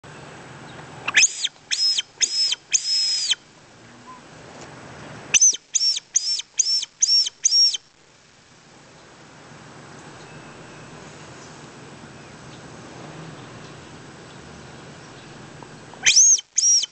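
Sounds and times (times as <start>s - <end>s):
squirrel caller squeaky chirps: 1.1s - 3.4s, 5.4s - 7.8s, 16.0s - 16.9s.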